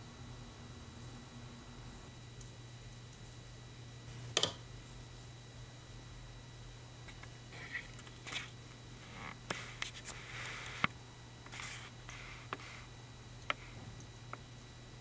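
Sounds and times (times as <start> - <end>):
steady low hum: 0.0 - 15.0
scratchy rustles: 9.1 - 10.9, 11.5 - 12.9.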